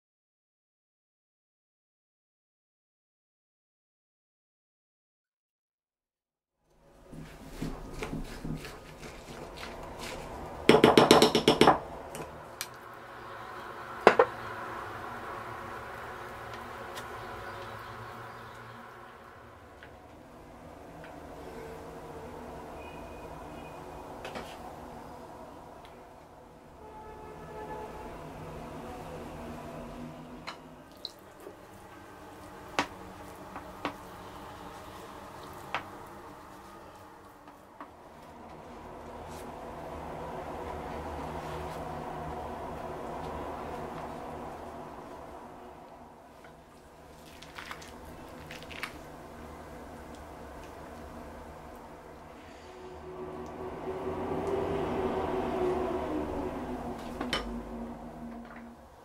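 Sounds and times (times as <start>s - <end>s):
wooden spoon knocking ceramic bowl: 10.7s - 11.8s
wet squishes of sauce: 47.1s - 49.2s.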